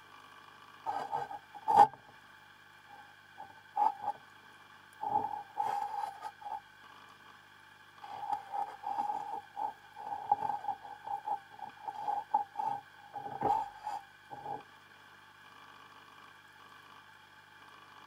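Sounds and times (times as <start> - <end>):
faint steady hum: 0.0 - 18.0
underwater knocks and rattles: 8.2 - 14.6.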